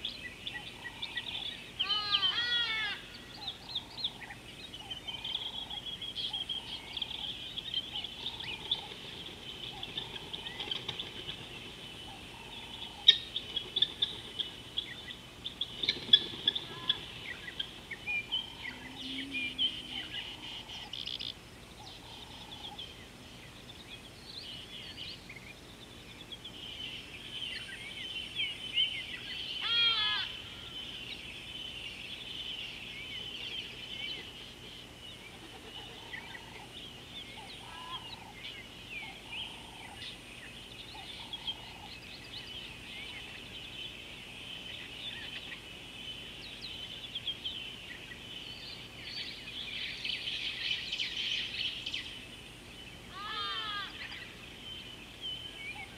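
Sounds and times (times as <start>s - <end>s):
low bird notes: 0.0s - 25.4s
birds chirping: 0.0s - 55.9s
high-pitched bird chorus: 0.0s - 55.9s.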